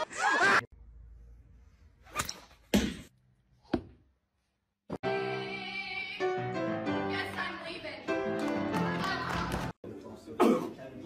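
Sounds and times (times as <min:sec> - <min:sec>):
music: 0:05.0 - 0:09.8.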